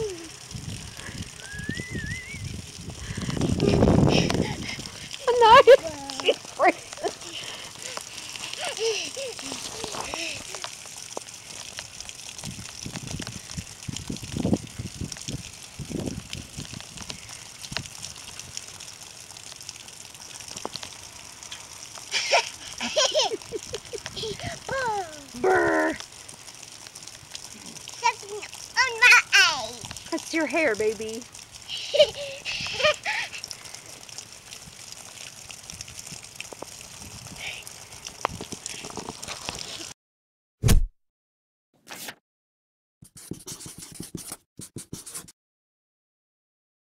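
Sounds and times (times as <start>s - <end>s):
steady rain hiss: 0.0s - 39.9s
outdoor noise: 0.0s - 40.0s
brief swish: 40.6s - 40.9s
loud short thud: 40.6s - 40.9s
marker writing on paper: 43.0s - 45.3s.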